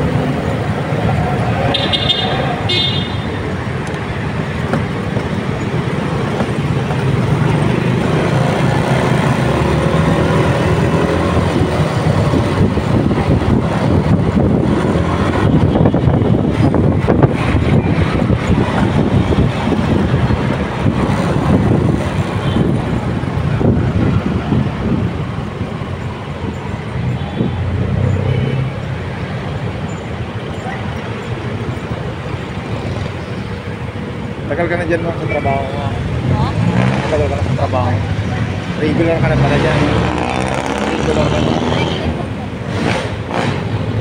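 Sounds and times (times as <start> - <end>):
low rumble of engines: 0.0 - 44.0
motorcycle road and wind noise: 0.0 - 44.0
vehicle horn toots: 1.7 - 3.4
wind buffeting microphone: 3.5 - 29.2.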